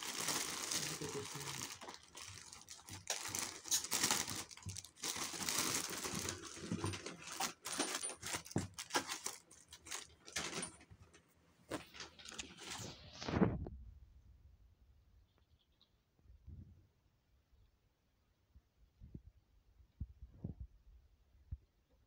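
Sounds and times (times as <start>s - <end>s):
plastic and paper wrapping crinkling: 0.0s - 10.9s, 11.7s - 13.0s.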